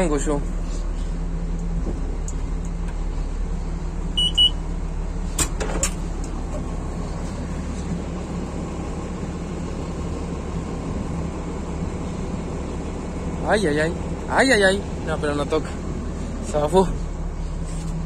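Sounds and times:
combine harvester droning: 0.0s - 18.0s
short high beeps: 4.2s - 4.6s.

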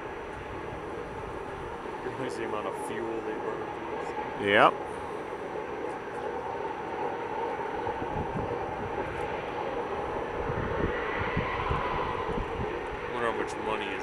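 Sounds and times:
haul truck diesel engine drone: 0.0s - 14.0s
uneven low rumble: 0.0s - 14.0s.

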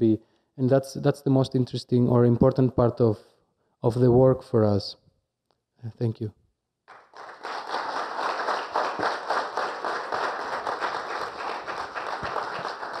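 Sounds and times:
audience applauding: 6.9s - 13.0s.

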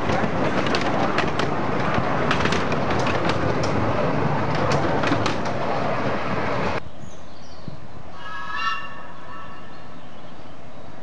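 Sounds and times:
train wheels rumbling and clicking: 0.0s - 6.8s.

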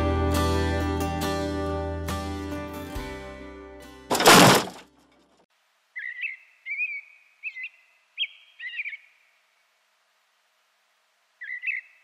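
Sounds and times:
songbird chirping: 5.8s - 10.2s, 11.0s - 12.0s.

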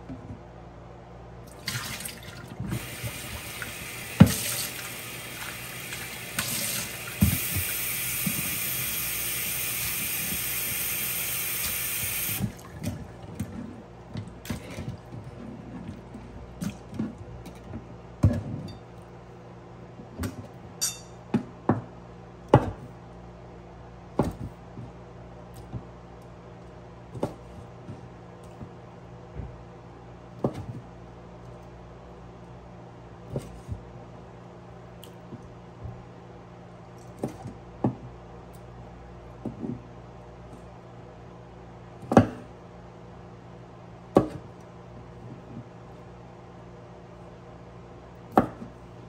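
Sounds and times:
tap running into a bowl: 6.4s - 8.6s.

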